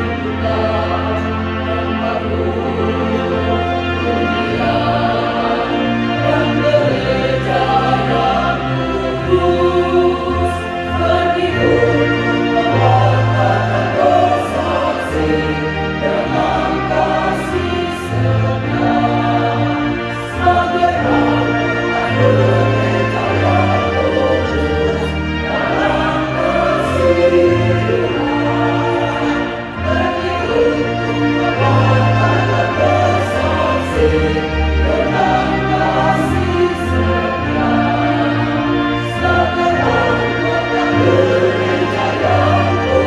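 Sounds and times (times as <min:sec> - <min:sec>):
choir singing a hymn: 0:00.0 - 0:43.0.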